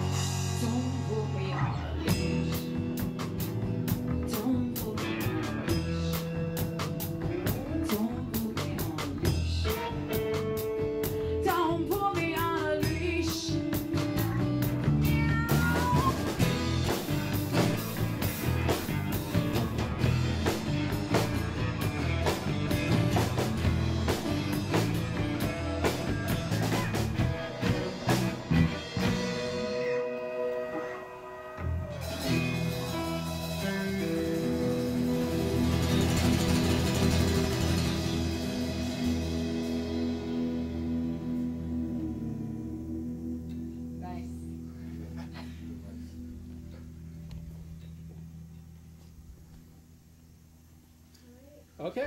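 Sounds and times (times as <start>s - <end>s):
rock band playing: 0.0s - 42.6s
lead guitar bending notes: 13.6s - 48.4s.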